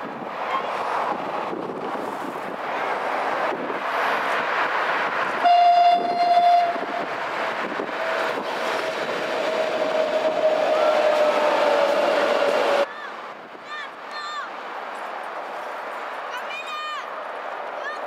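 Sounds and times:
metro train running: 0:00.0 - 0:13.1
road traffic noise: 0:00.0 - 0:18.0
train horn: 0:05.4 - 0:07.0, 0:09.4 - 0:12.8.

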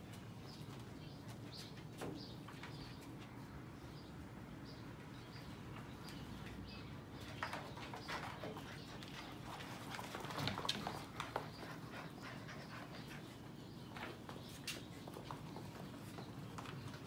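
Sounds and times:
paws clicking on floor: 0:07.2 - 0:17.0.

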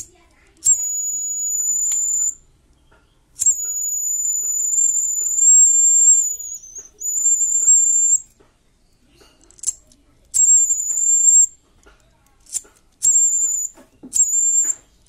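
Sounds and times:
shrill piezo buzzer tone: 0:00.7 - 0:02.4, 0:03.4 - 0:08.3, 0:10.4 - 0:11.5, 0:13.1 - 0:14.8.

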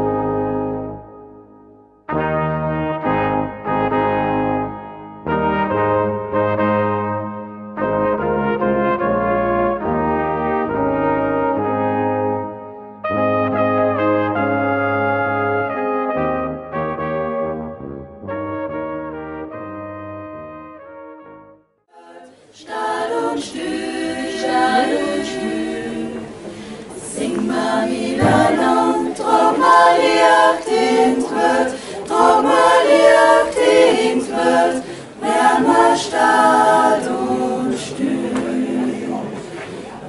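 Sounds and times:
women singing in harmony: 0:21.9 - 0:39.5.

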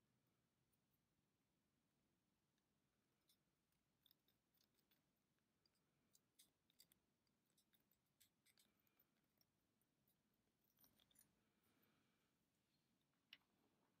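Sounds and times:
metal pick scraping plastic threads: 0:03.2 - 0:11.9.

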